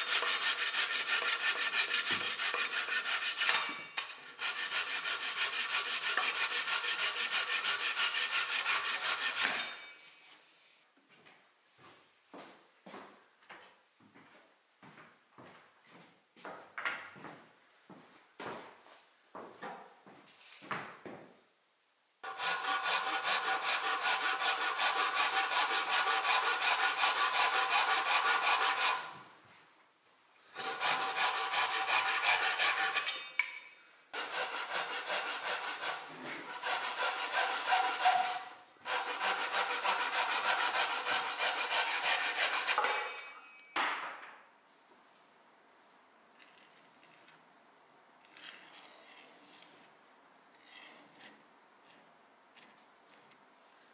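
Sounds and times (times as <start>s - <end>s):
hand saw cutting wood: 0.0s - 9.9s, 22.2s - 29.1s, 30.5s - 33.3s, 34.1s - 43.4s.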